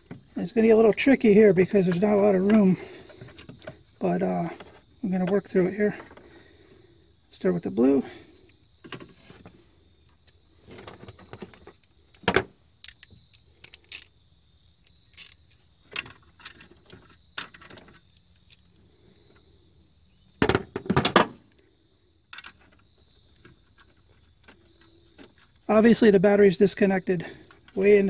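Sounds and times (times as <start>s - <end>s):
wires and terminals clicking: 11.7s - 14.1s, 14.8s - 15.7s.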